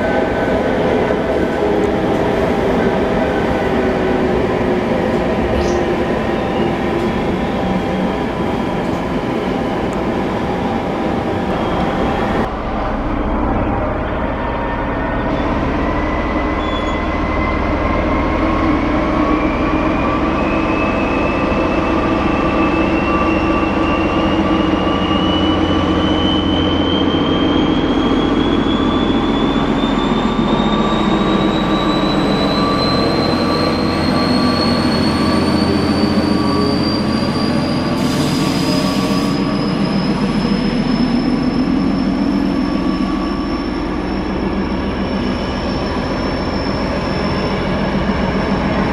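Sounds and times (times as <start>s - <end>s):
diesel locomotive engine: 0.0s - 48.9s
high whine rising in pitch: 12.1s - 37.9s.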